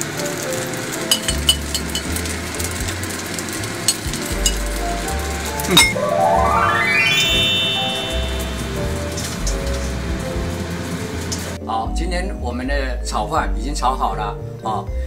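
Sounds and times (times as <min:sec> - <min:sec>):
rice sizzling in a frying pan: 0:00.0 - 0:05.8
utensil clinking on pan: 0:01.1 - 0:02.2, 0:03.9 - 0:04.6
rising musical jingle: 0:05.7 - 0:09.9.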